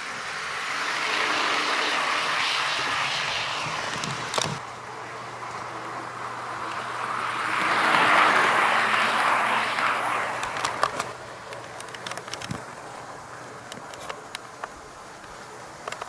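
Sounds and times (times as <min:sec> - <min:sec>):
wheels clicking over rail joints: 0:03.6 - 0:05.8, 0:09.7 - 0:16.0.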